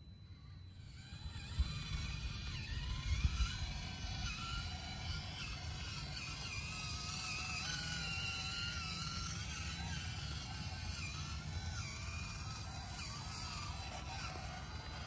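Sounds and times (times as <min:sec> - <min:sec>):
toy truck motor whining: 0:00.0 - 0:15.0.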